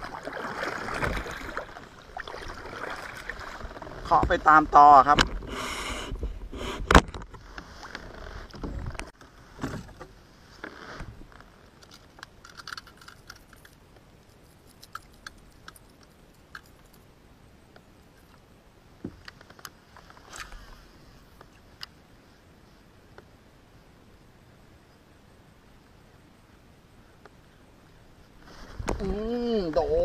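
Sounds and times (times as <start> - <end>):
water sloshing: 0.0 - 5.4.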